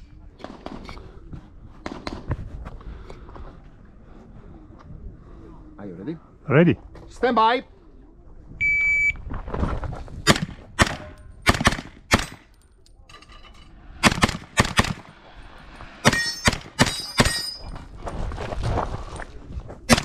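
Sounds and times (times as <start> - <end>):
pistol shots: 10.3 - 12.5.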